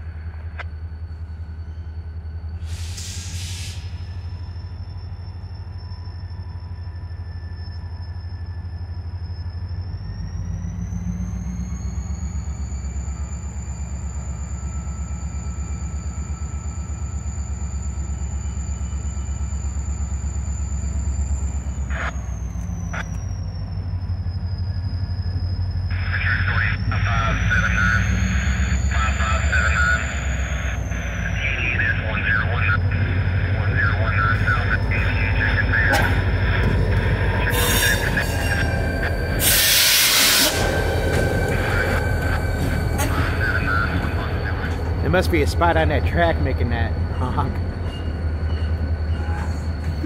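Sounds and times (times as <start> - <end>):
high engine whine: 0.0 - 50.0
locomotive engine rumble: 0.0 - 50.0
air hiss: 2.6 - 4.0.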